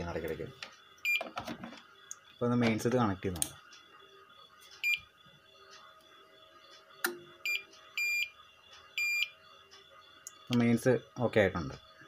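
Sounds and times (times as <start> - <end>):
inverter buzzer beeping: 0.0 - 1.4, 4.8 - 5.2, 7.0 - 9.4.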